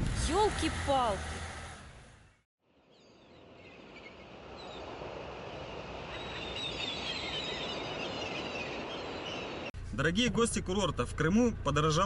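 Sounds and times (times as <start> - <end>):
small birds chirping: 6.0 - 9.7.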